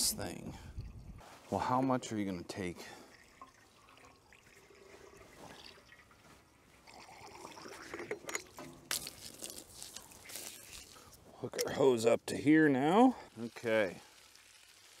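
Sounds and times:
water trickling: 0:00.0 - 0:11.2, 0:12.7 - 0:15.0.

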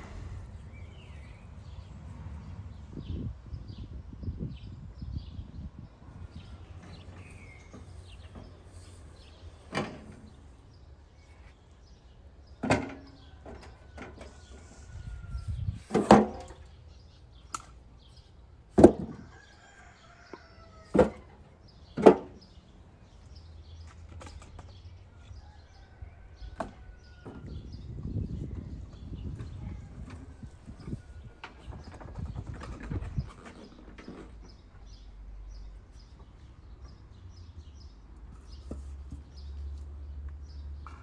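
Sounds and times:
logs dropped into metal wheelbarrow: 0:09.6 - 0:10.4, 0:12.6 - 0:14.4, 0:15.8 - 0:16.6, 0:18.7 - 0:19.2, 0:20.9 - 0:21.4, 0:22.0 - 0:22.4.

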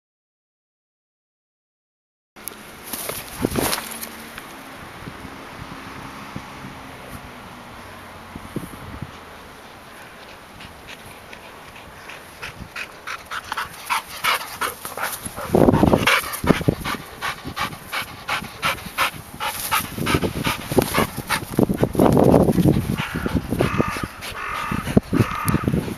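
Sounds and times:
rustling bursts: 0:02.8 - 0:04.6
dog panting: 0:09.6 - 0:25.9.

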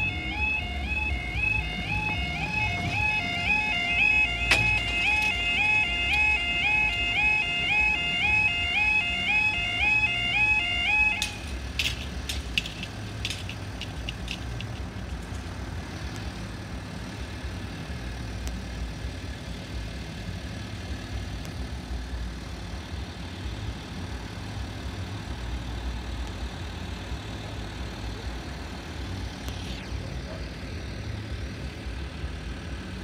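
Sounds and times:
level crossing warning alarm: 0:00.0 - 0:12.8
vehicle engine idling: 0:00.0 - 0:33.0
sharp clicks: 0:11.1 - 0:15.5.

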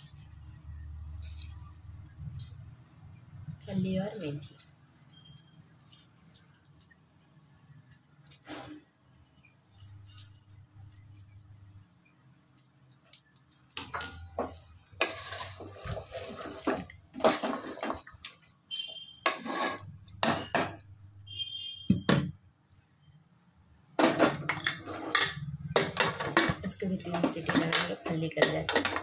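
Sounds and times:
wooden spoon scraping a pot: 0:14.3 - 0:20.7, 0:24.1 - 0:29.0.

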